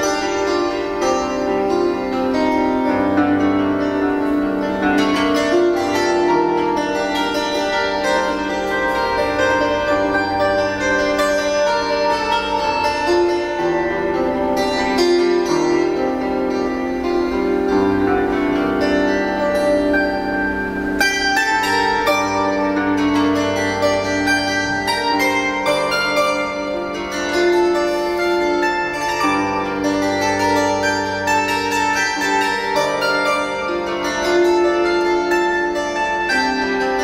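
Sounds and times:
plucked strings improvisation: 0.0 - 37.0.

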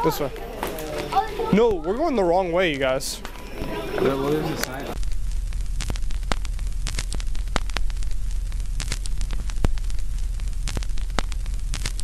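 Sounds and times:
film crackle clicks and pops: 4.6 - 12.0
low rumble: 5.0 - 11.8.

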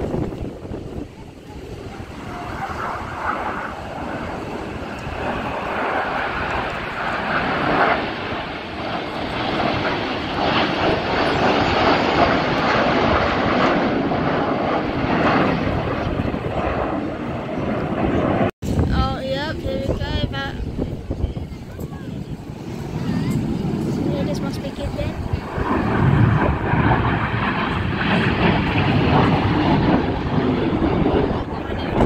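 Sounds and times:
jets flying past roaring: 0.0 - 32.0.

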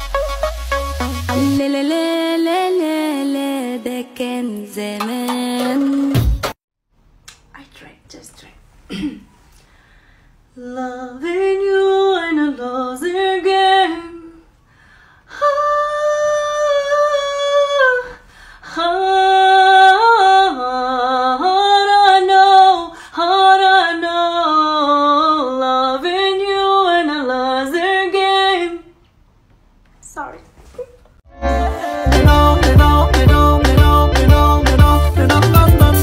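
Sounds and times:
woman singing unaccompanied: 1.3 - 6.2, 10.6 - 14.4, 15.3 - 29.0.

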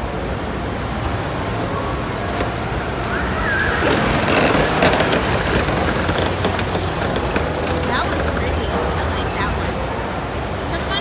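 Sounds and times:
distant voices: 0.0 - 11.0
exhibition hall roar: 0.0 - 11.0.

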